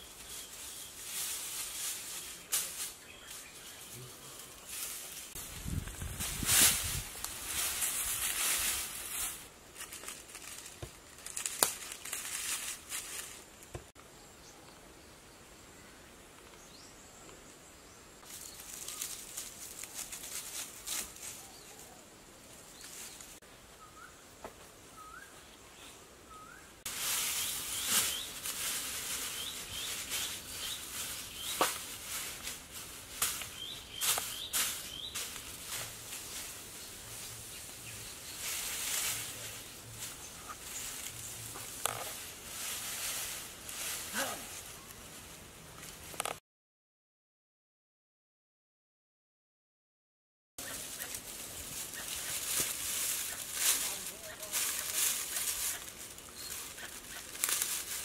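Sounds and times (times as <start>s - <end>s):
small birds chirping: 0.0s - 5.4s, 25.0s - 32.5s, 33.2s - 42.2s, 50.6s - 57.4s
dry grass thatch rustling: 0.0s - 13.8s, 18.2s - 22.0s, 26.9s - 46.4s, 50.6s - 58.0s.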